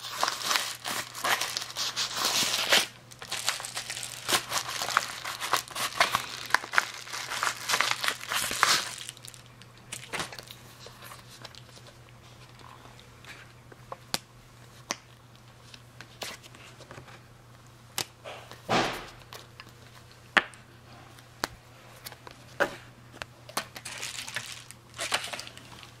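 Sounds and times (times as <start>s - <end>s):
paper rustling: 0.0s - 9.4s, 23.7s - 26.0s.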